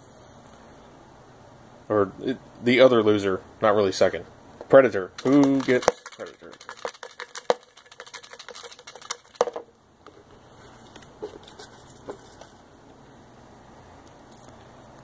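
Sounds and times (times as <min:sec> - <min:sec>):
paper slips rattling in plastic tub: 0:05.1 - 0:09.7
paper handling: 0:05.2 - 0:09.6, 0:10.6 - 0:12.7.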